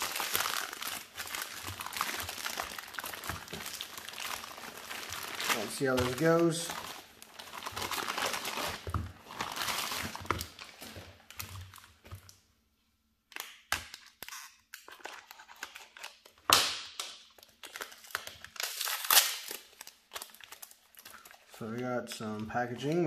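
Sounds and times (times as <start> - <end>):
plastic bag rustling and tearing: 0.0 - 12.0
cardboard packages handled: 0.0 - 12.4.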